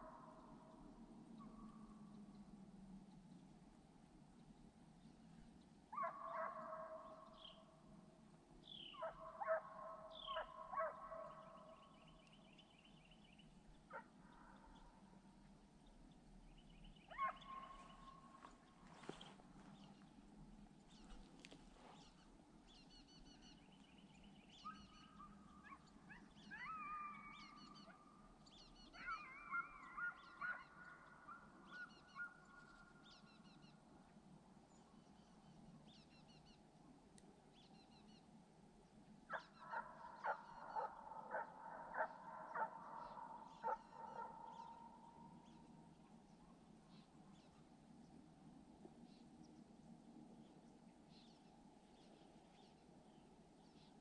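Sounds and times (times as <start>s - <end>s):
distant hounds baying and barking: 1.4s - 2.3s, 5.9s - 7.7s, 8.7s - 13.0s, 13.7s - 15.3s, 17.0s - 20.0s, 24.5s - 33.6s, 39.3s - 46.3s
small birds chirping: 8.6s - 48.3s.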